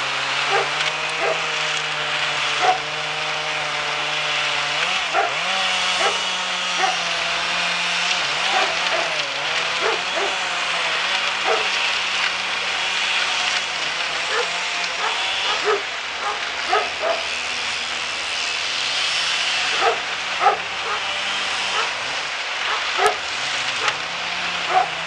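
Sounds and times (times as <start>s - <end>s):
wood chipper engine droning: 0.0s - 25.0s
dog barking: 0.5s - 1.5s, 2.6s - 2.9s, 5.1s - 7.0s, 8.4s - 9.2s, 9.8s - 10.4s, 11.4s - 11.8s, 14.3s - 17.3s, 19.7s - 21.1s, 21.7s - 22.0s, 22.6s - 23.2s, 24.7s - 25.0s.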